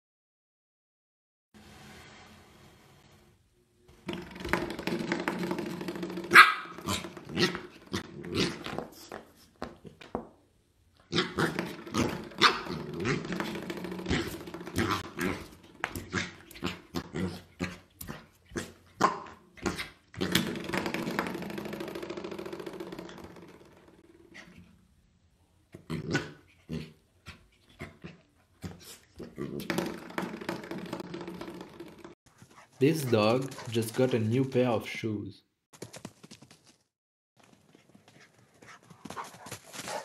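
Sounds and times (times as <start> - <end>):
puppy growling: 5.2 - 8.9, 11.0 - 20.7
puppy barking and yipping: 6.3 - 7.5, 12.4 - 12.8.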